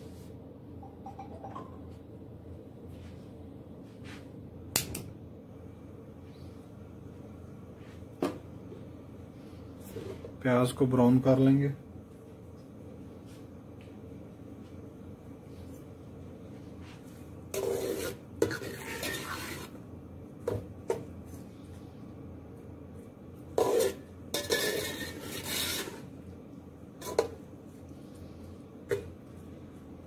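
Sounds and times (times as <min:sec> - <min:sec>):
spoon stirring onions in pot: 0:17.5 - 0:19.8, 0:23.5 - 0:26.1, 0:27.0 - 0:27.4.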